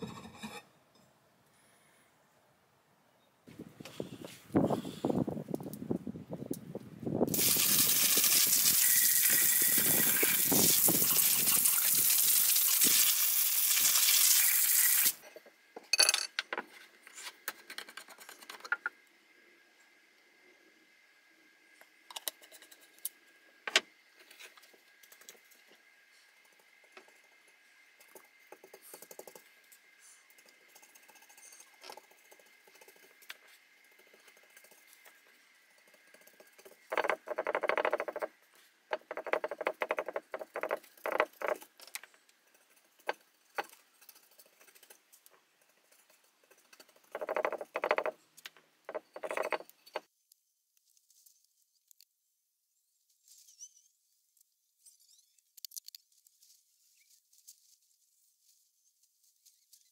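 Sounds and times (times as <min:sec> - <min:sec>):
small knocks: 0:38.9 - 0:41.6.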